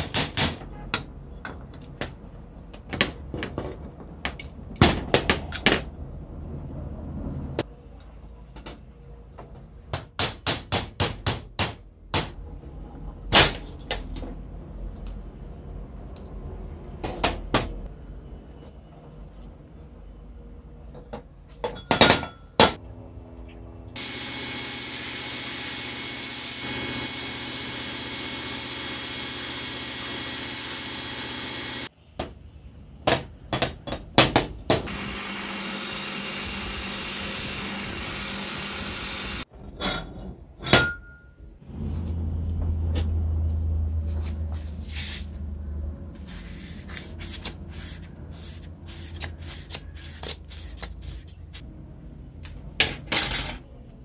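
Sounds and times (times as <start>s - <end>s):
buffing wheel running: 24.0s - 31.9s, 34.9s - 39.5s.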